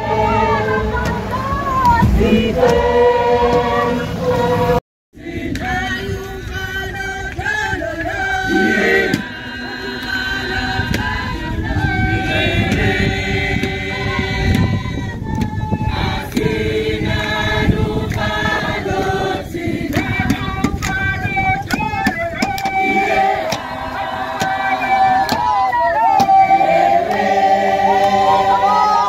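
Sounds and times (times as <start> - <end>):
steady low rumble: 0.0 - 22.4
crowd singing together: 0.0 - 29.0.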